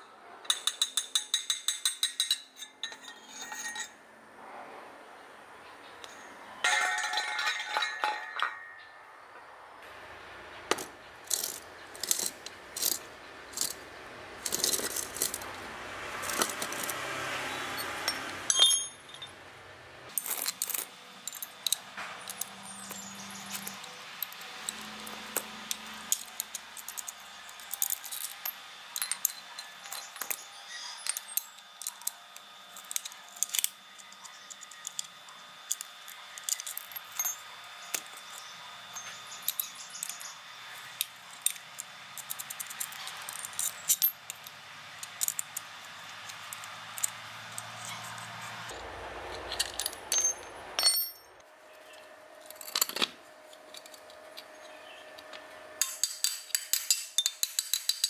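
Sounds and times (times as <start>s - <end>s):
tools clinking on metal housing: 0.4s - 4.0s, 6.0s - 9.0s, 17.8s - 19.4s, 36.4s - 40.4s, 42.2s - 45.6s, 49.3s - 51.4s, 55.8s - 58.0s.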